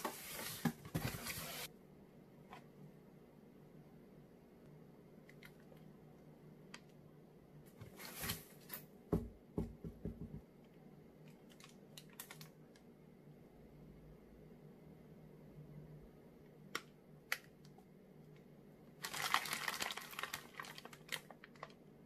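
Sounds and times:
plastic wrapping rustling: 19.0 - 21.8.

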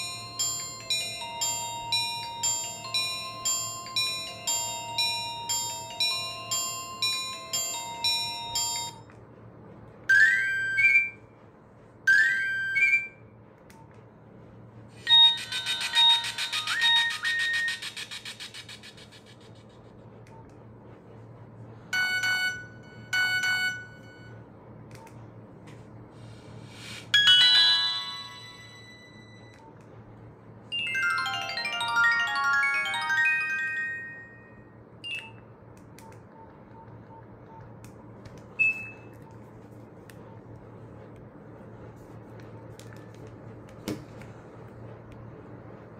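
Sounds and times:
phone ringtone electronic notes: 0.0 - 9.0, 10.1 - 11.2, 15.0 - 18.3, 22.0 - 24.3, 27.2 - 29.5, 30.7 - 35.2
keypad beeps with clicks: 35.0 - 37.8.

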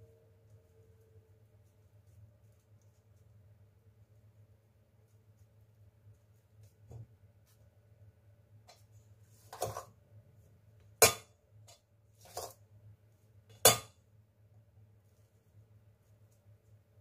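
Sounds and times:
faint hum: 0.0 - 9.3
metal spoon scraping pot: 9.5 - 9.9, 12.2 - 12.6.

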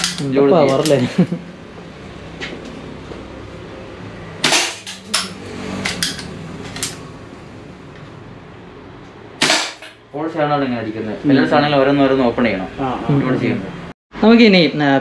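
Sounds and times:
air pistol shot: 4.4 - 5.0, 9.4 - 9.9.

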